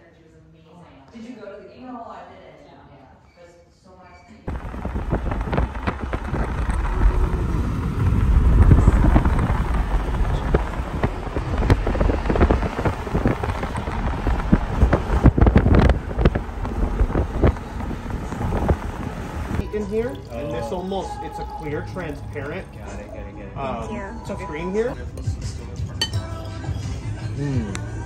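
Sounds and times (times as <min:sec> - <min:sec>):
wind buffeting microphone: 0:04.5 - 0:19.6
sharp crackles: 0:04.5 - 0:20.3
road noise rumble: 0:04.5 - 0:28.0.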